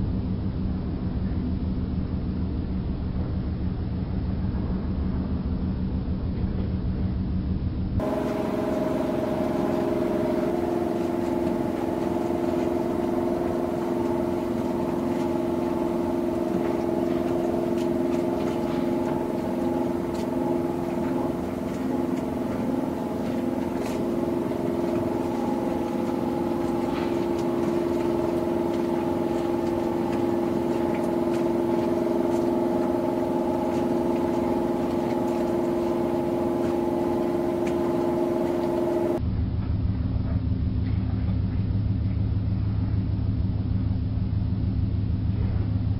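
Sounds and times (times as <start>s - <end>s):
boat engine droning: 8.0s - 39.2s.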